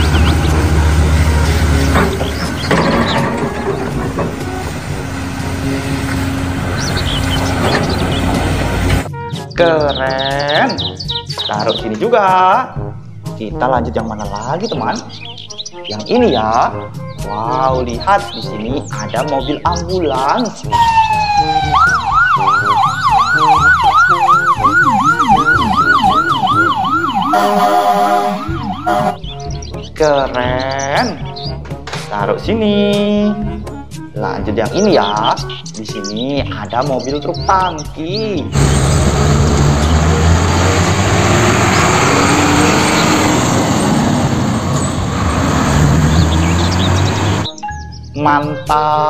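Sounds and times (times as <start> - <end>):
road traffic roar: 0.0 - 9.2, 20.6 - 29.7, 38.5 - 47.6
truck engine hum: 0.0 - 9.3, 20.6 - 29.4, 38.5 - 47.6
ambulance siren wailing: 20.7 - 29.2, 38.6 - 47.6
lower-pitched siren wail: 20.7 - 29.2, 38.6 - 47.5.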